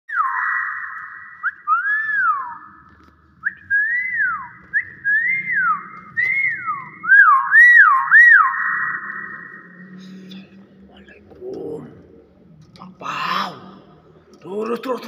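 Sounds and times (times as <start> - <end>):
bird whistling sliding notes: 0.1 - 2.8, 3.4 - 10.6.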